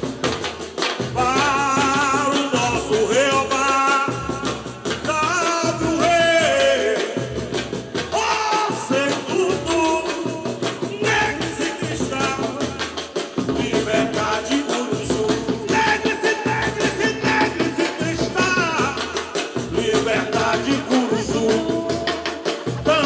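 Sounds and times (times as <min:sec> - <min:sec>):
drum ensemble with bass drums: 0:00.0 - 0:23.0
person singing lead vocal: 0:01.1 - 0:23.0.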